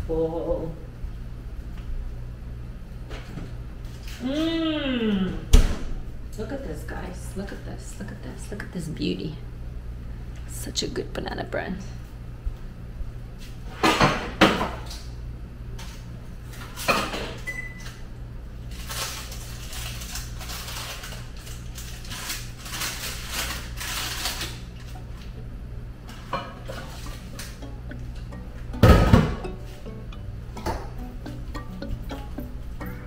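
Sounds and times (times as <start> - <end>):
low hum: 24.8 - 33.0
pans and dishes clanking: 26.1 - 28.0, 28.7 - 30.0.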